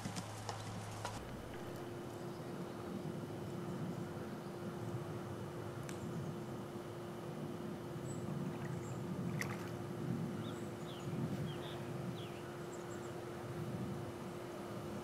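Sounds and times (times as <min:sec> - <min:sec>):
steady low hum: 0:00.0 - 0:15.0
pool water lapping: 0:08.4 - 0:09.8.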